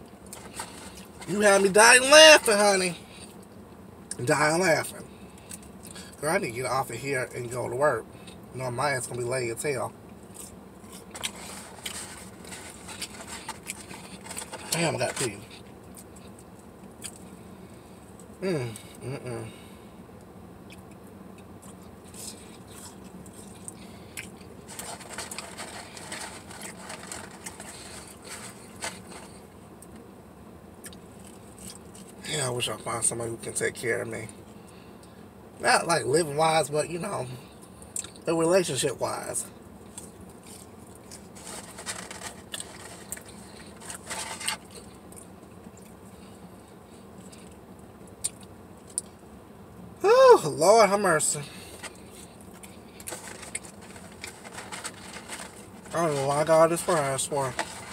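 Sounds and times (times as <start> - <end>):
steady low hum: 0.0 - 57.9
food wrapping crinkling: 0.2 - 2.2, 10.3 - 17.2, 22.1 - 29.4, 39.8 - 45.0, 51.6 - 57.9
person chewing and biting: 10.2 - 14.8, 20.7 - 29.4, 39.9 - 46.0.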